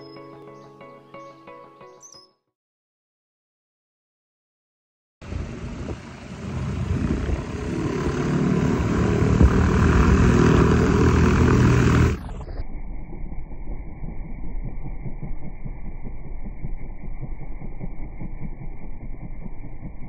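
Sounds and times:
propeller plane taxiing: 0:05.2 - 0:12.2.

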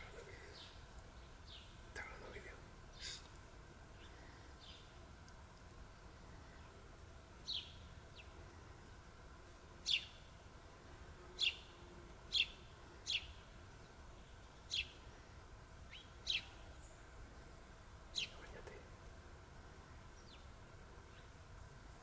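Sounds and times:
songbird sharp chirps: 0:07.4 - 0:08.4, 0:09.8 - 0:10.3, 0:15.9 - 0:17.1, 0:18.1 - 0:18.8.

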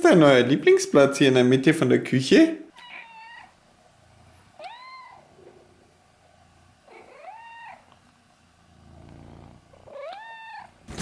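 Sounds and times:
cat meowing: 0:02.7 - 0:03.6, 0:04.6 - 0:05.3, 0:06.9 - 0:08.0, 0:09.8 - 0:10.8
cat purring: 0:02.9 - 0:11.0.

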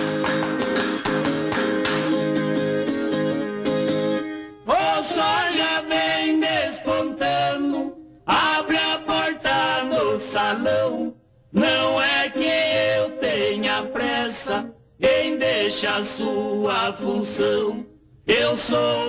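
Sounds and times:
two men singing: 0:04.7 - 0:19.0.

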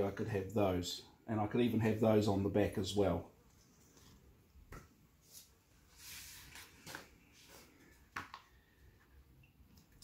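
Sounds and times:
paper sheets rustling: 0:05.3 - 0:07.7.

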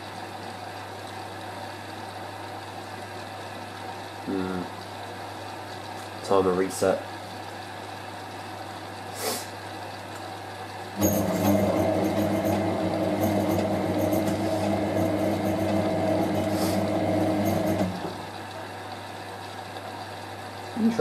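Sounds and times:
washing machine drum humming: 0:09.9 - 0:21.0.

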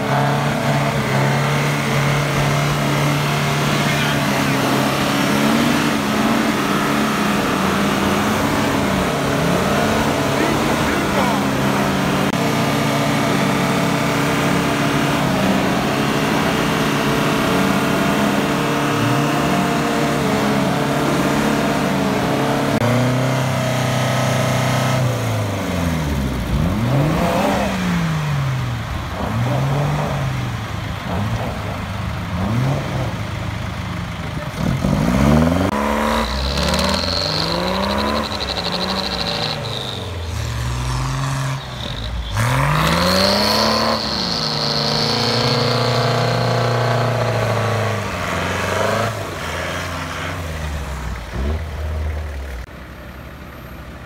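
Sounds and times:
off-road engines revving under load: 0:00.0 - 0:52.7.

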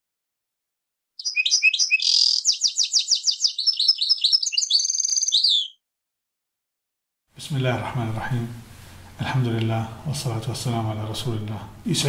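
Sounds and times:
songbird singing: 0:01.2 - 0:05.8.

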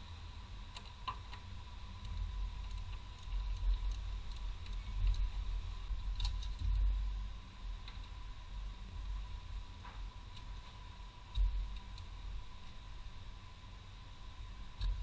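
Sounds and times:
faint high whine: 0:00.0 - 0:15.0
low rumble: 0:01.5 - 0:13.3.

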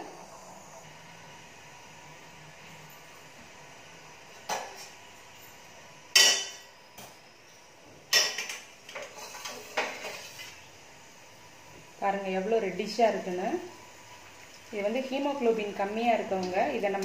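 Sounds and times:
metal cookware clanking: 0:06.1 - 0:06.6, 0:08.1 - 0:10.4.

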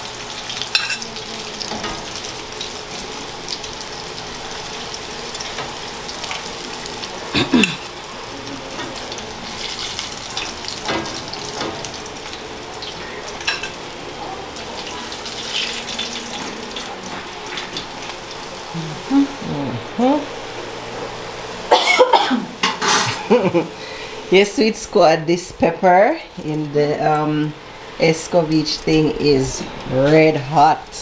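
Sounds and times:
chicken sizzling in oil: 0:00.0 - 0:19.4.

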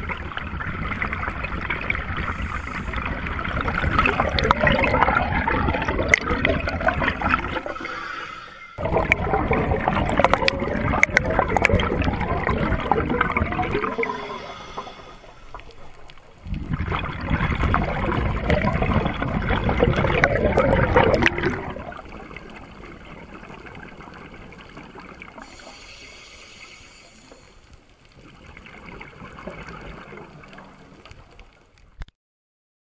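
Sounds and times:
exhaled bubbles rushing: 0:00.0 - 0:31.3
soft water noise: 0:00.0 - 0:32.1
diver breathing through regulator: 0:02.2 - 0:03.3, 0:07.4 - 0:08.8, 0:13.8 - 0:16.0, 0:25.4 - 0:27.7.

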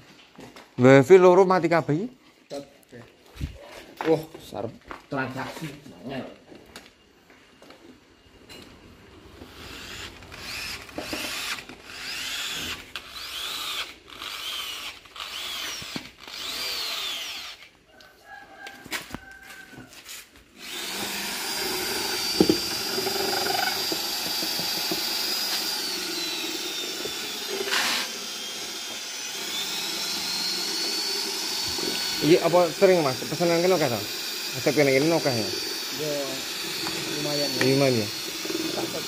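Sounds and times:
electric power tool whirring: 0:09.2 - 0:17.7, 0:20.6 - 0:39.0.

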